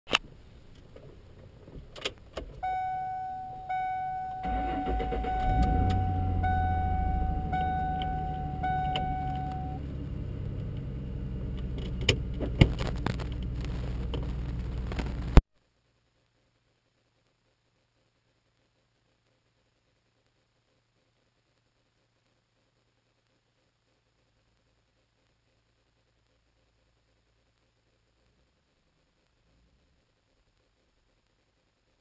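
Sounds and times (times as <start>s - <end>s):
car engine starting and idling: 0.5s - 15.4s
car keys clicking: 2.6s - 9.8s
dashboard warning buzzer: 2.6s - 9.8s.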